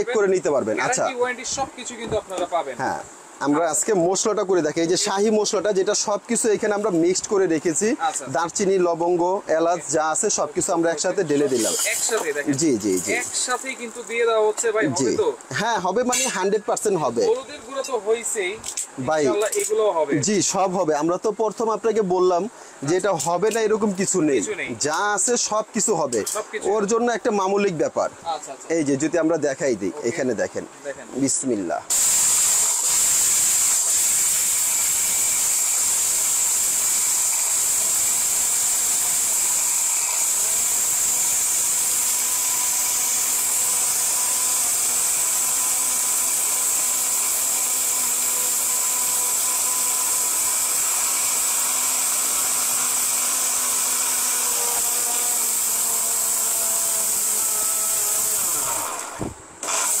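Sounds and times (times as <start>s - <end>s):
blender grinding spices: 31.9s - 60.0s.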